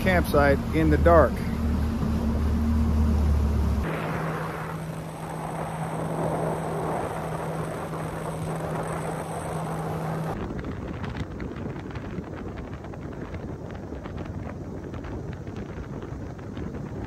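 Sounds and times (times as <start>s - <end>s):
outboard engine hum: 0.0s - 17.0s
water rushing: 2.5s - 10.4s
wind buffeting microphone: 3.8s - 17.0s.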